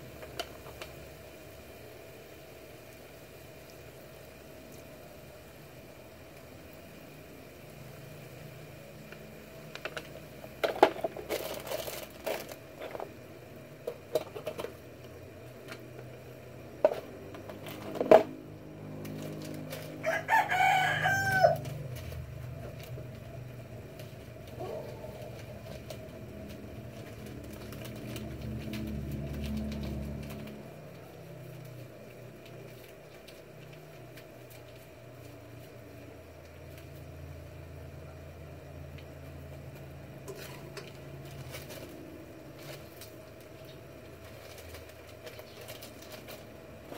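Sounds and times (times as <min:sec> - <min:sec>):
steady low hum: 0:00.0 - 0:46.9
rooster crowing: 0:19.5 - 0:22.0.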